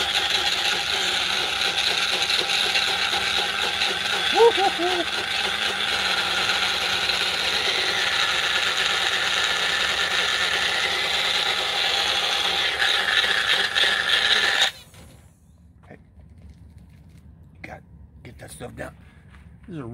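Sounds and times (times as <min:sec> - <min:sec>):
blender motor whirring: 0:00.0 - 0:14.8.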